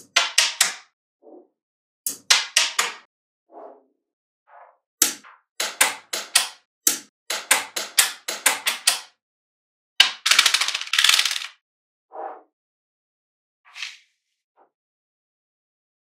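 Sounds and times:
magnetic balls clicking together: 0:02.1 - 0:03.0, 0:10.0 - 0:11.5
rattling clatter of magnetic balls: 0:10.2 - 0:11.6.

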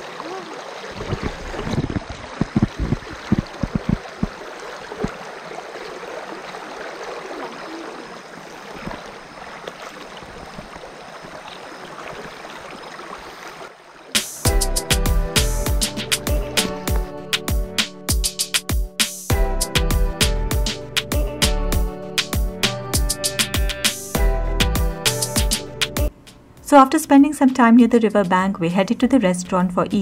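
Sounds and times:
river flowing over stones: 0:00.0 - 0:14.2
low thuds: 0:01.0 - 0:04.4.

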